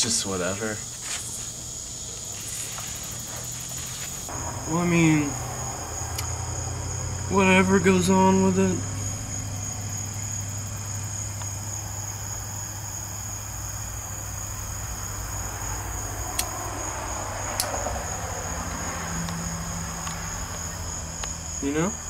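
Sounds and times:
low hum: 1.4 - 22.0
sharp clicks: 16.3 - 16.6, 17.6 - 17.8.

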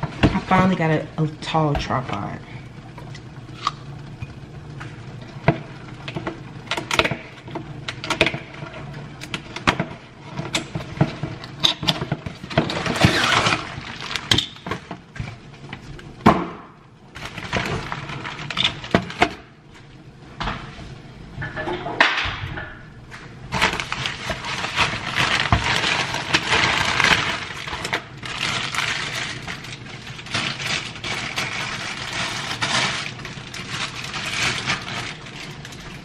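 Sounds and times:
packaging rustling: 12.3 - 14.9, 17.1 - 19.4, 23.5 - 36.0.

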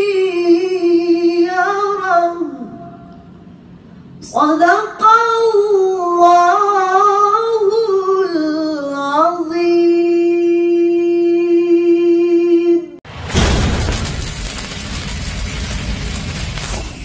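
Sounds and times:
woman reciting melodically: 0.0 - 3.1, 4.2 - 13.0.

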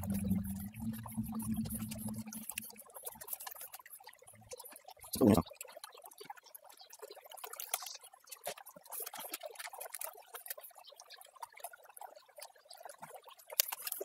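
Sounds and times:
small splashes and drips: 3.3 - 14.0.

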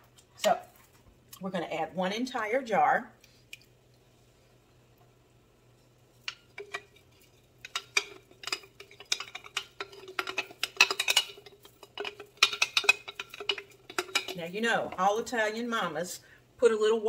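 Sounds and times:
utensil scraping glass jar: 6.3 - 15.2.

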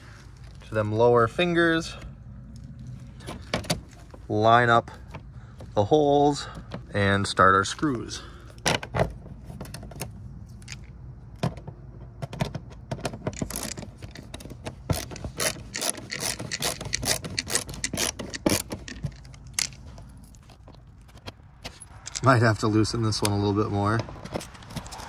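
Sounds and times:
screwdriver scraping and clicking: 13.3 - 22.3.

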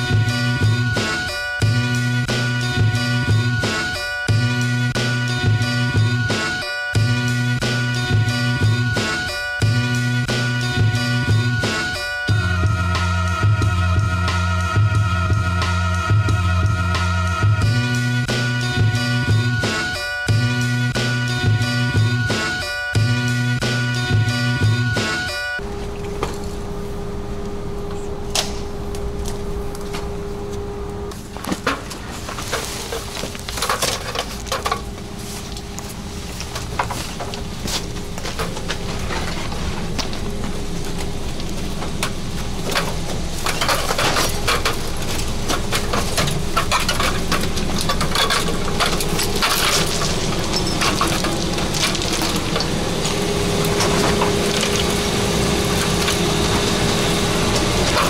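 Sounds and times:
steady hum: 0.0 - 58.0
footsteps crunching on gravel: 31.2 - 43.4.

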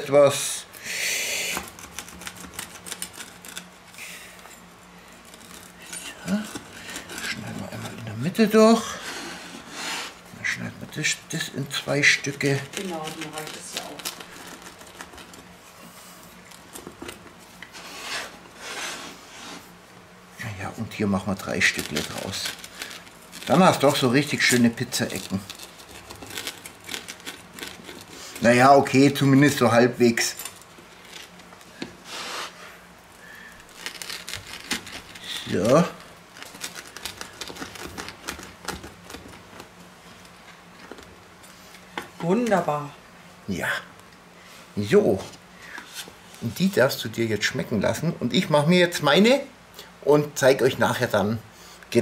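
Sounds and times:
pizza cutter rolling through crust: 1.4 - 19.8, 20.6 - 41.2
wooden board scraping: 5.4 - 10.2, 16.8 - 19.7.

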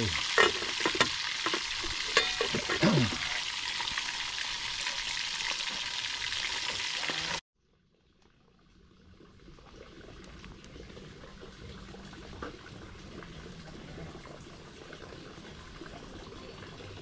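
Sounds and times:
fish sizzling in hot oil: 0.0 - 7.4.

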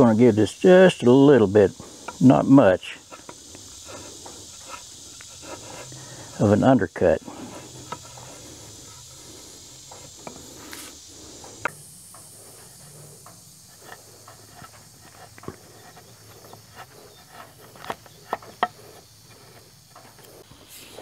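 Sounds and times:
steady high hiss: 0.0 - 21.0
chisel scraping wood: 1.8 - 6.6, 7.2 - 20.8.

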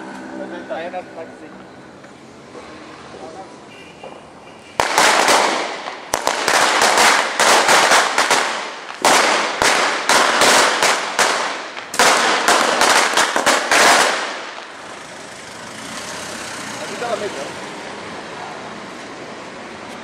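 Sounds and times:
firecrackers banging: 4.0 - 16.1.

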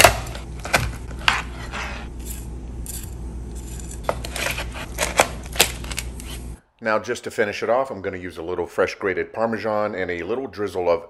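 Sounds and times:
steady low hum: 0.0 - 6.7.

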